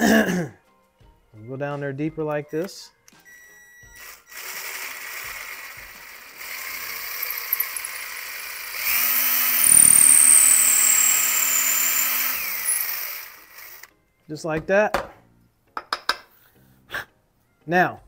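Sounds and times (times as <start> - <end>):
power drill boring into wood: 4.0 - 13.9.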